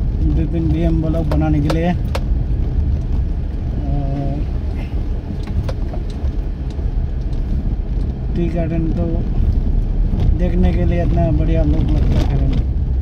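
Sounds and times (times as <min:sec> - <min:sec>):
car engine and tyres rumbling: 0:00.0 - 0:13.0
light knocks and rattles: 0:04.7 - 0:08.2.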